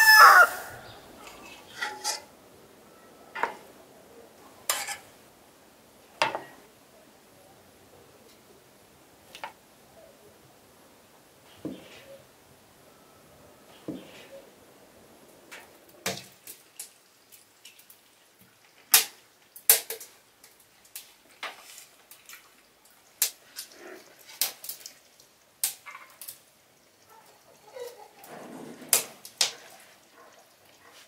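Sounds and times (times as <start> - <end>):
cutlery clicking on wooden plates: 4.7 - 5.1.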